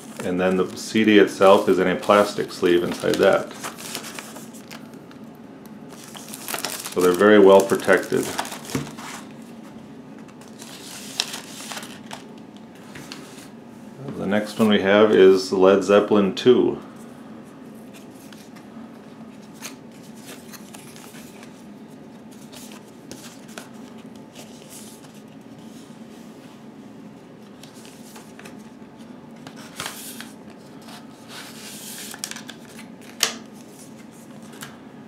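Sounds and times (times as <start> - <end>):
cardboard sleeve rustling: 0.0 - 4.9, 5.9 - 9.7, 10.4 - 12.3.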